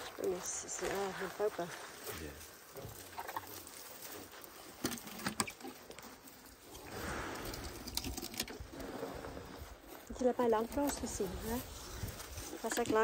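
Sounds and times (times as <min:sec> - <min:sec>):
twigs cracking: 0:00.0 - 0:08.7
breathy rush of elephant trunk: 0:06.8 - 0:07.9.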